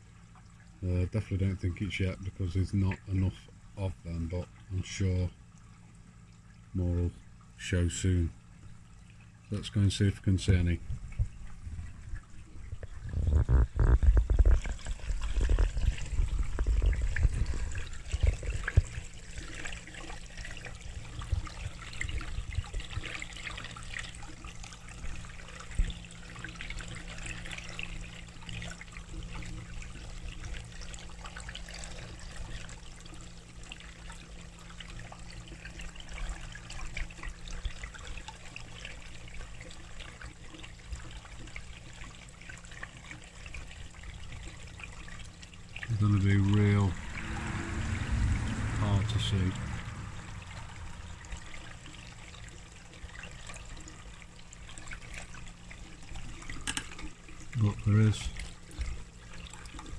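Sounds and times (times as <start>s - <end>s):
water trickling into a pond: 0.0s - 59.9s
low hum: 45.8s - 53.9s.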